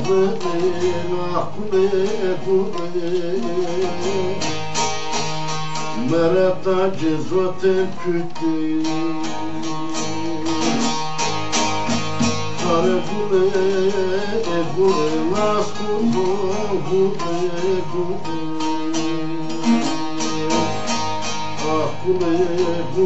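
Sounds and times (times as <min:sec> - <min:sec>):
long-necked lute strummed: 0:00.0 - 0:23.0
wordless vocal line: 0:12.2 - 0:23.0.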